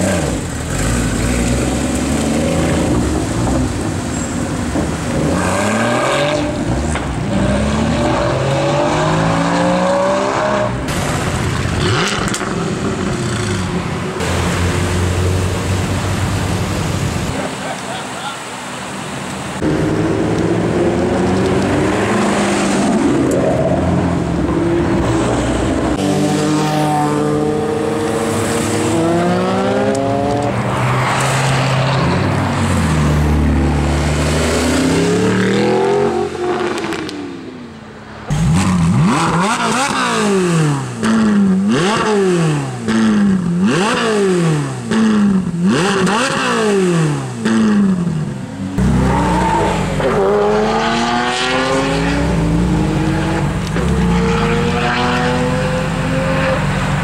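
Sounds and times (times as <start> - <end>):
car engines accelerating hard: 0.0 - 57.0
car engine revving while standing: 19.6 - 37.4, 38.3 - 57.0.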